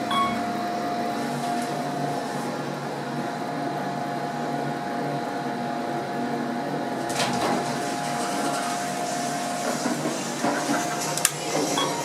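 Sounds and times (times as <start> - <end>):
elevator mechanical hum: 0.0 - 12.0
sliding door rattling: 7.1 - 11.8
elevator door clunk: 7.1 - 12.0.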